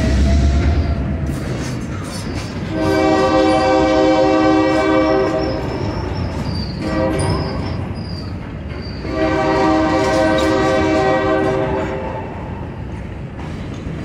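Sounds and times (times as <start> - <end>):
freight train cars rumbling past: 0.0 - 14.0
train horn: 2.6 - 7.6, 9.0 - 12.6.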